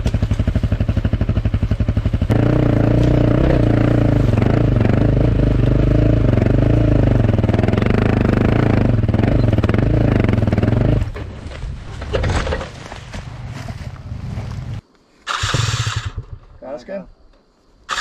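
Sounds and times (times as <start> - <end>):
motorcycle engine revving: 0.0 - 11.2, 15.3 - 16.4.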